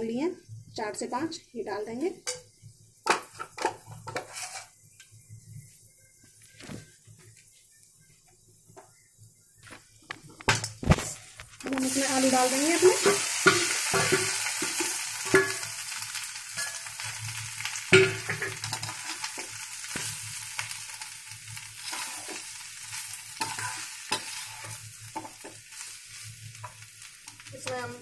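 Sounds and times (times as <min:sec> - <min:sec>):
potatoes sizzling in hot oil: 0:00.1 - 0:06.4, 0:08.8 - 0:28.0
metal spoon scraping pan: 0:03.1 - 0:04.8, 0:12.8 - 0:15.7, 0:16.6 - 0:17.0, 0:17.9 - 0:20.1, 0:21.8 - 0:25.9
spoon knocking on pan: 0:17.9 - 0:18.7.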